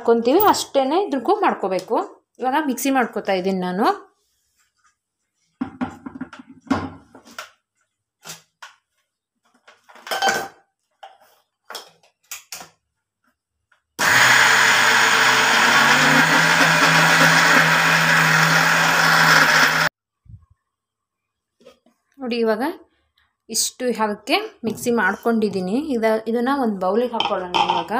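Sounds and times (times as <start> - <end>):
mixer grinder whirring: 14.0 - 19.9.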